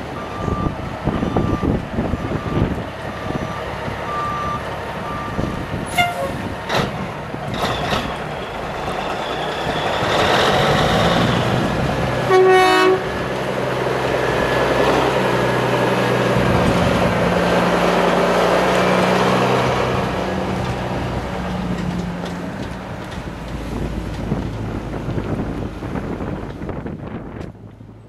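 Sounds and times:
diesel truck engine running: 0.0 - 28.0
truck horn blast: 5.9 - 6.5, 12.2 - 13.2.

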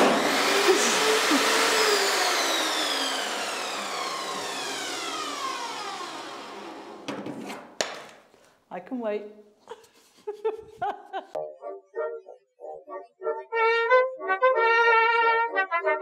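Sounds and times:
table saw spinning down: 0.0 - 7.6.

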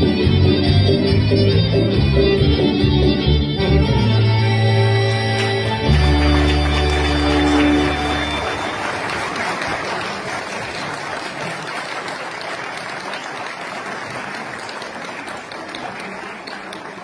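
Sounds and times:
audience applauding: 5.0 - 17.0.

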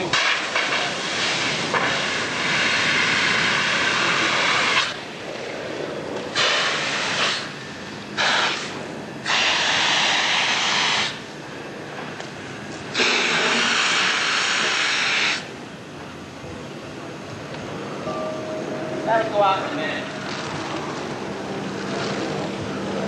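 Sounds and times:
hose nozzle hissing: 8.2 - 11.2, 12.9 - 15.4.

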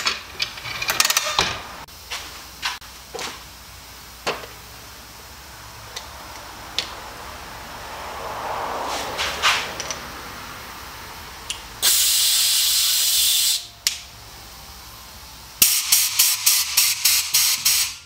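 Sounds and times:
short air blasts: 11.8 - 13.7, 15.6 - 18.0
compressed air hissing: 11.8 - 13.8, 15.6 - 18.0.

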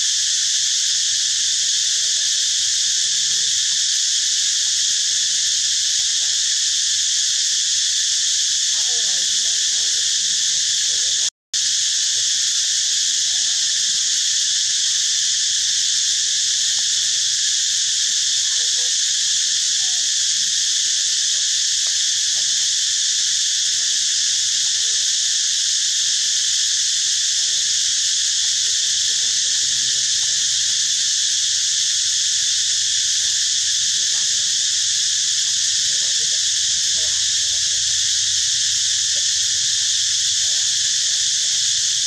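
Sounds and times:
high-pitched insect chorus: 0.0 - 42.0.

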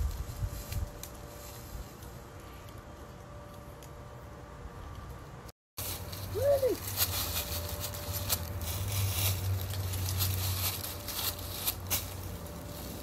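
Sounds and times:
dry leaves rustling and crackling: 0.0 - 4.2, 5.8 - 13.0
steady low hum: 0.0 - 13.0.

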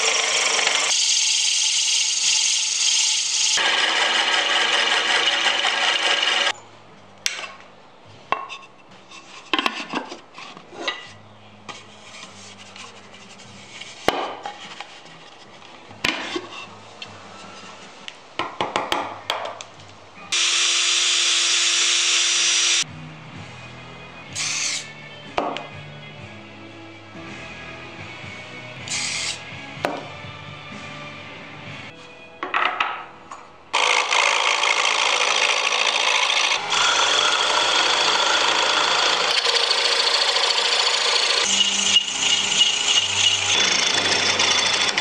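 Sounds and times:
sandpaper hissing on spinning wood: 0.0 - 6.5, 36.7 - 45.0
soft background music: 6.5 - 20.4, 22.8 - 33.8.

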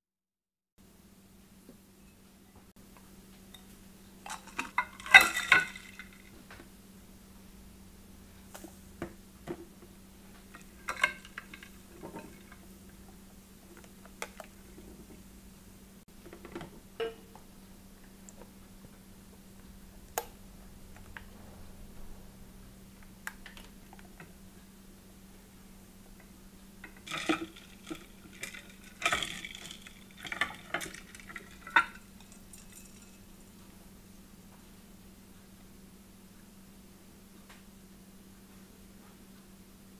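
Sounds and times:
faint low hum: 0.8 - 39.9.

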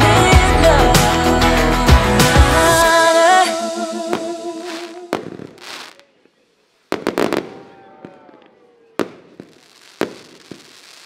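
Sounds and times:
firework bangs: 4.1 - 6.0, 6.9 - 11.0
firework cracks: 4.1 - 6.1, 6.9 - 11.0.

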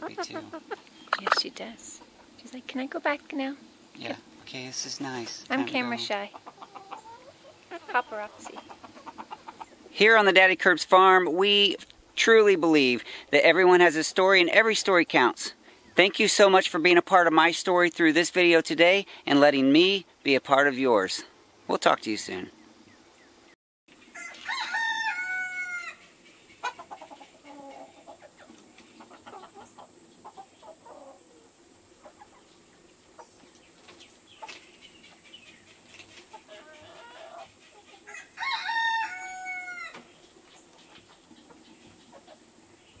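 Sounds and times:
chickens clucking: 0.0 - 2.6, 4.5 - 10.4, 23.9 - 43.0
rooster crowing: 24.1 - 26.0, 36.5 - 40.1.

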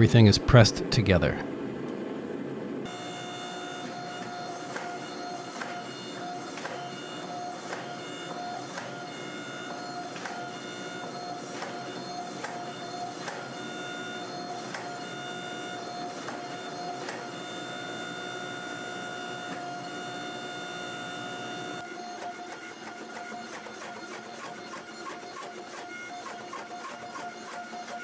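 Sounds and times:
hydraulic press whining: 2.9 - 28.0.

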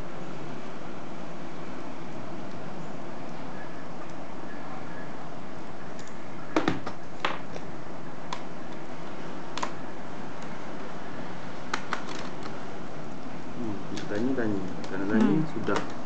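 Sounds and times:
steady background hiss: 0.0 - 16.0
plastic clicks and knocks of laptop: 11.7 - 12.6, 14.7 - 16.0.

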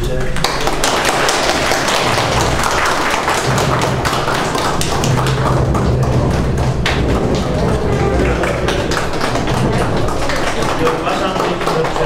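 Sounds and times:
people applauding: 0.0 - 12.0.

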